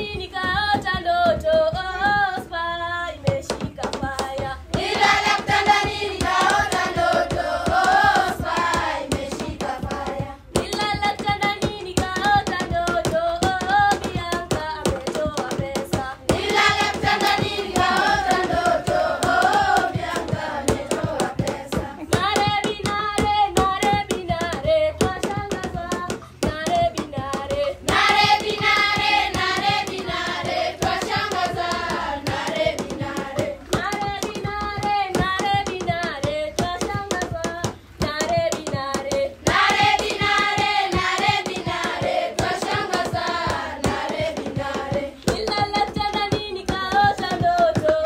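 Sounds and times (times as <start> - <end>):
voices singing: 0.0 - 48.0
hand claps: 3.3 - 48.0.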